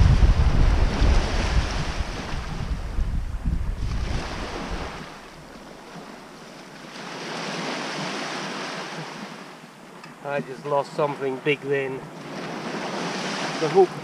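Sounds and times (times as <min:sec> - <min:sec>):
small waves washing on sand: 0:00.0 - 0:03.0, 0:03.7 - 0:14.0
wind rumbling on microphone: 0:00.0 - 0:06.6.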